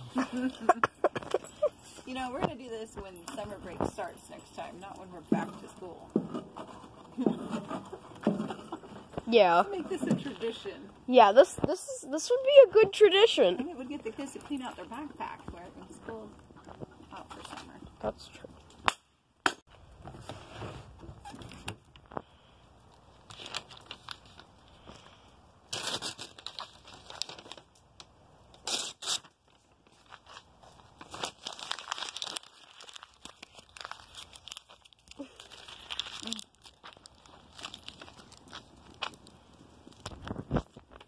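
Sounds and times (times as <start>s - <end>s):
fire crackling: 0.0s - 41.0s
paper tearing and crumpling: 23.2s - 24.9s, 25.7s - 27.7s, 28.6s - 41.0s.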